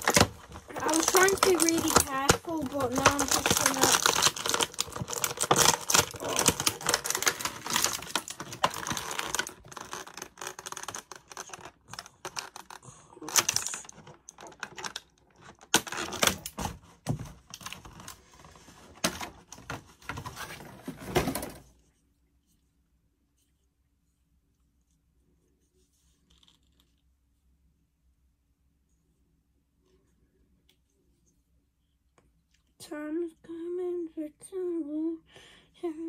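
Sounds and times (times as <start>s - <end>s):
plastic packaging crinkling: 0.0s - 21.6s.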